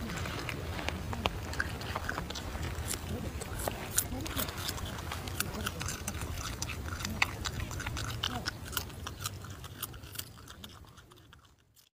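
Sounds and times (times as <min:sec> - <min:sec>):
animal chewing crisp cucumber: 0:00.0 - 0:11.9.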